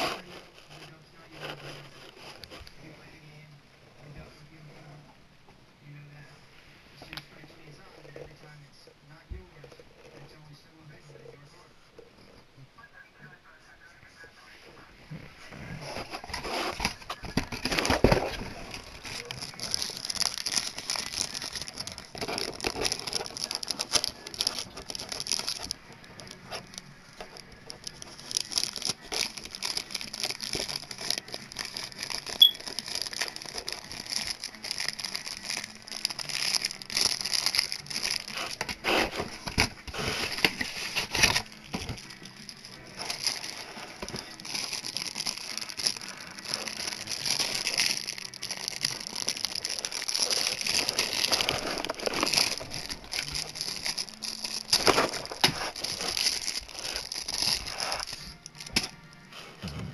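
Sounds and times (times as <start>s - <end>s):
plastic wrapping crinkling: 15.7s - 59.8s.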